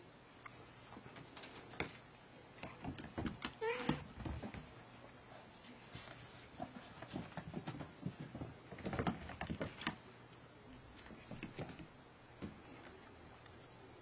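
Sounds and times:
kittens scampering on floor: 0:05.6 - 0:10.0.

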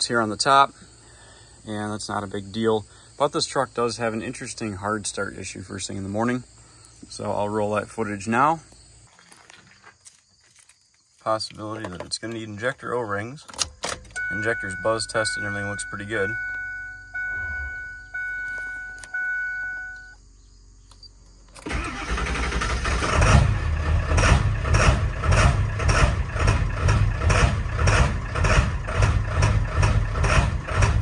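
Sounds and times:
dashboard chime dinging: 0:14.2 - 0:20.2
diesel engine cranking and running rough: 0:21.6 - 0:31.0.

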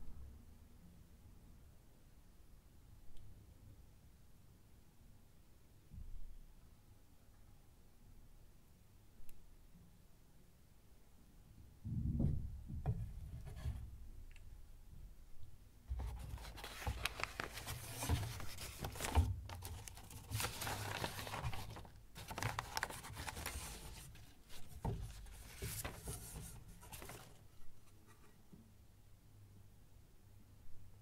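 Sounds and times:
paper rustling and scraping: 0:15.9 - 0:28.3.

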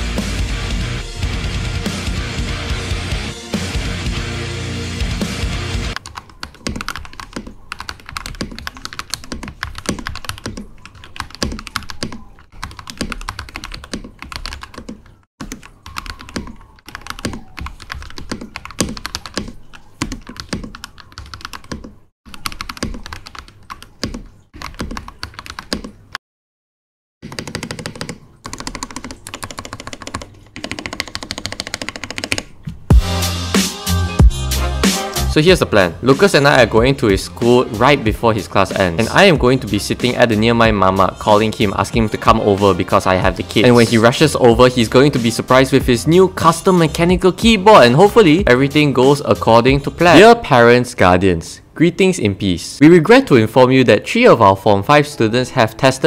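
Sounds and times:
mechanical keyboard typing: 0:06.0 - 0:26.0, 0:27.2 - 0:32.6.

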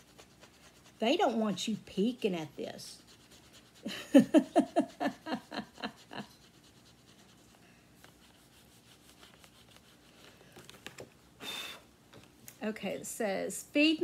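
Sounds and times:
woman laughing: 0:03.8 - 0:06.4.

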